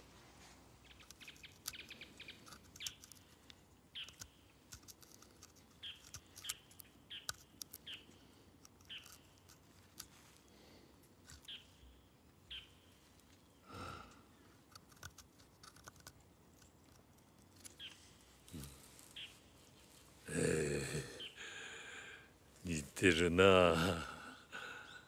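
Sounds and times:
knife carving wood: 0.8s - 11.8s, 14.5s - 19.3s.

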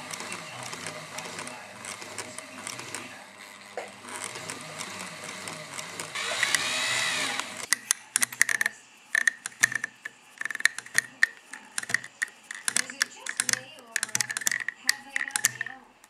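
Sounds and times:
sewing machine whine: 0.0s - 7.7s
sharp metallic clicks: 0.0s - 16.0s.

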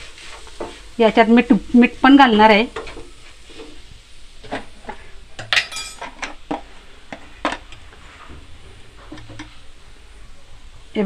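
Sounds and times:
wooden spatula scraping a pan: 0.0s - 1.1s, 1.8s - 5.2s, 6.1s - 9.7s
ringing clink: 5.5s - 6.0s.

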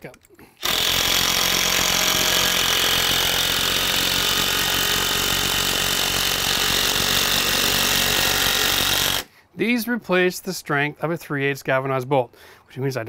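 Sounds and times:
impact driver hammering screw: 0.6s - 9.3s.

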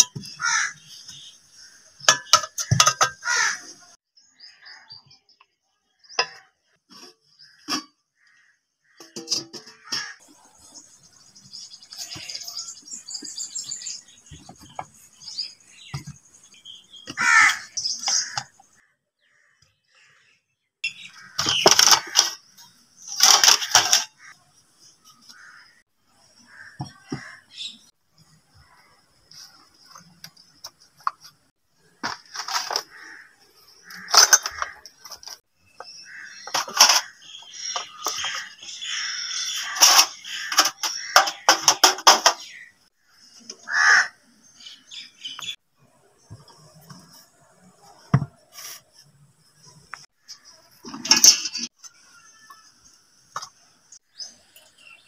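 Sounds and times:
birds chirping: 0.0s - 55.0s
metal kitchenware clinking: 2.0s - 3.2s, 9.0s - 10.2s, 23.1s - 24.2s, 33.9s - 35.3s, 36.4s - 38.4s, 39.7s - 42.6s, 50.4s - 51.7s
kitchenware clattering: 2.0s - 3.3s, 33.9s - 35.3s, 36.4s - 38.4s, 39.7s - 42.6s
appliances set down on counter: 2.1s - 3.2s.

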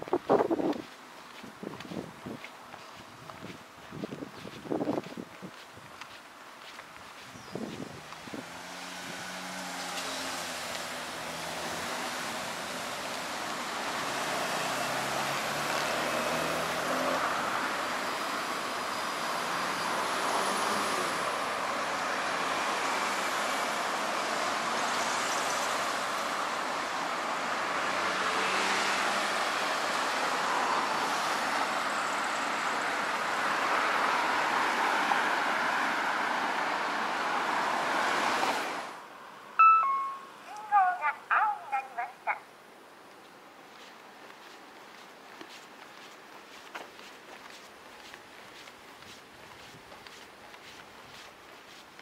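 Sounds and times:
road traffic passing: 0.0s - 52.0s.

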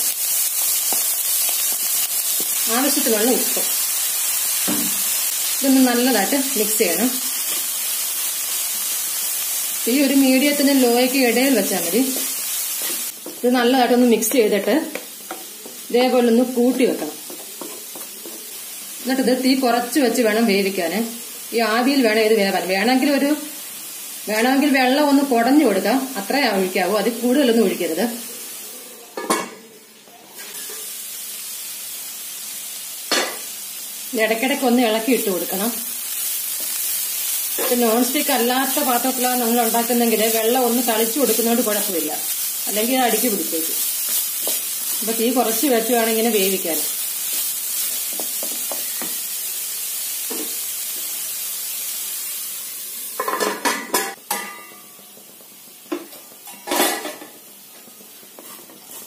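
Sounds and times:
food sizzling in a pan: 0.0s - 59.0s
wooden spatula scraping: 58.4s - 59.0s.

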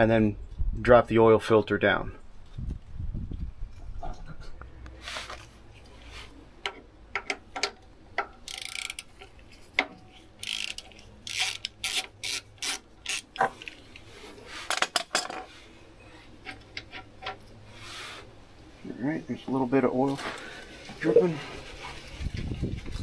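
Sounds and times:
socket ratchet clicking: 8.4s - 9.1s, 10.4s - 13.3s.

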